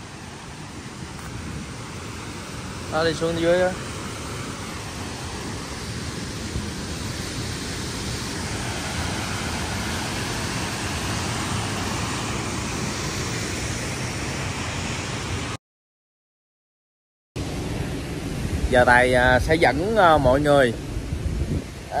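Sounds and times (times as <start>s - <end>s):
waterfall rushing: 0.0s - 15.6s.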